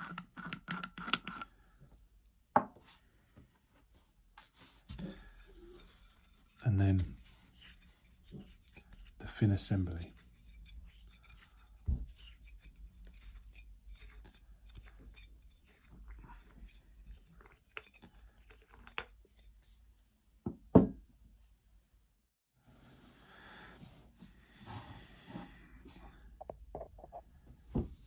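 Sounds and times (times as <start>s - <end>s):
metal scrapes and clicks: 5.7s - 19.5s
metal knocking on wooden table: 20.5s - 21.0s.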